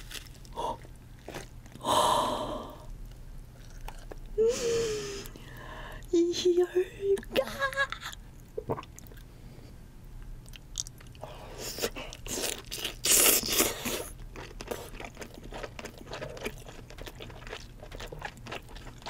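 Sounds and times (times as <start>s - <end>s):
person biting and chewing crab meat: 0.0s - 1.9s, 2.8s - 4.4s, 10.4s - 19.0s.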